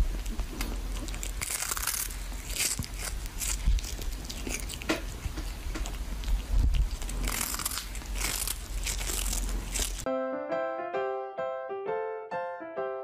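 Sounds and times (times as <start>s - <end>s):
kitten chewing crunchy food: 0.0s - 10.1s
piano music: 10.0s - 13.0s.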